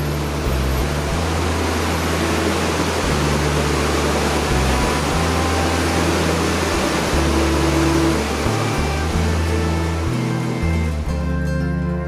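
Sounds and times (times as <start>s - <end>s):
river rushing over falls: 0.0s - 11.3s
low sustained background music: 0.0s - 12.0s.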